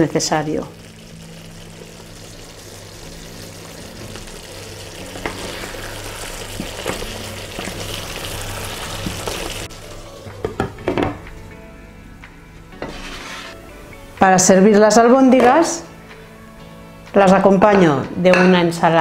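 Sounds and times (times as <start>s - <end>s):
meatballs sizzling in a frying pan: 0.0s - 10.0s.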